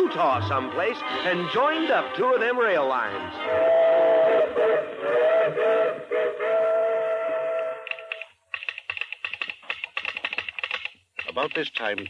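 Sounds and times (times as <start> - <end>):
steam locomotive whistle: 3.1 - 8.2
telegraph sounder clicking: 7.9 - 12.0.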